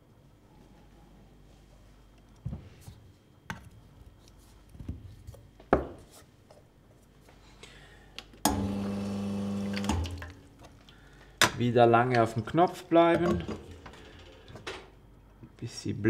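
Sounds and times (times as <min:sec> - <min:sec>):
espresso machine pump humming: 0:08.5 - 0:10.3.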